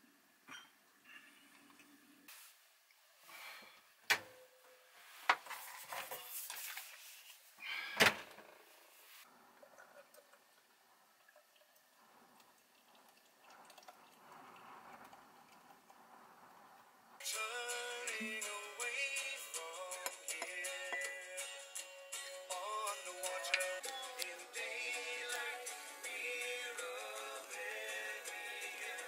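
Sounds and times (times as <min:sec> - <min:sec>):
liquid pouring into a glass: 0:09.5 - 0:16.0.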